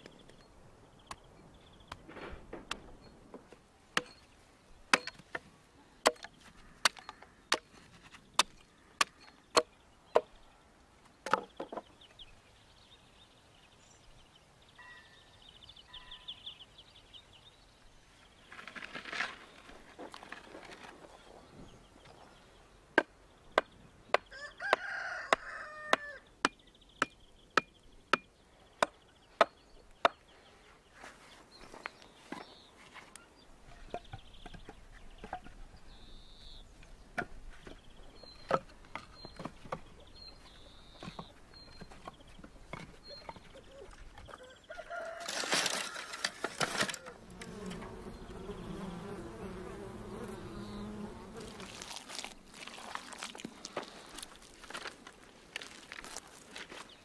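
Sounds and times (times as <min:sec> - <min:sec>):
rooster crowing: 0:24.3 - 0:26.2, 0:44.4 - 0:46.4
firewood logs clunking: 0:45.1 - 0:47.1, 0:51.8 - 0:56.9
honeybees buzzing: 0:47.0 - 0:54.6.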